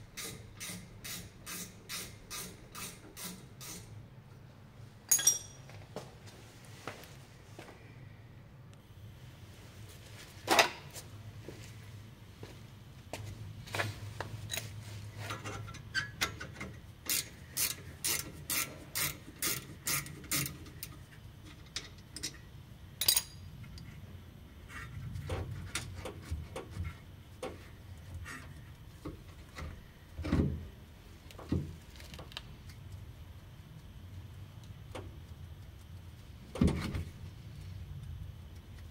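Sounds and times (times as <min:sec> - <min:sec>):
ratchet wrench clicking: 0:17.0 - 0:20.9.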